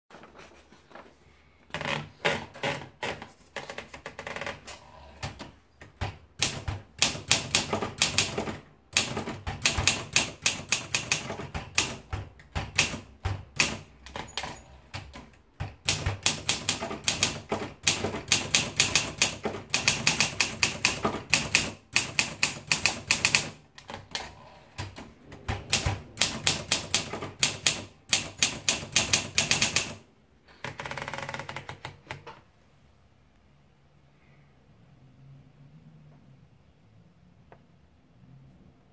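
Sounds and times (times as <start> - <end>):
typewriter keystrokes clacking: 5.2 - 30.0.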